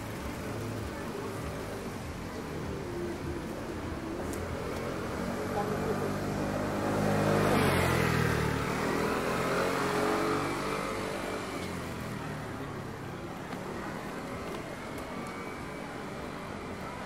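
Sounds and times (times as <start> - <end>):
traffic hum: 0.0 - 17.0
vehicle engine passing by: 4.6 - 12.4.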